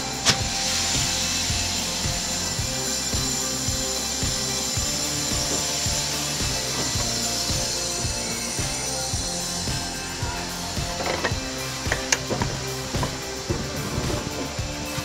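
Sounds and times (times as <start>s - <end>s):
steam hissing: 0.0s - 15.0s.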